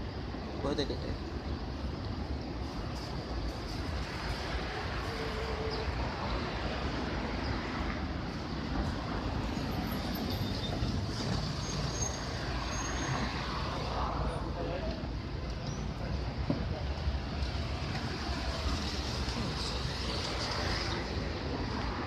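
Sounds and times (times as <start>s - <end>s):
city traffic rumble: 0.0s - 22.0s.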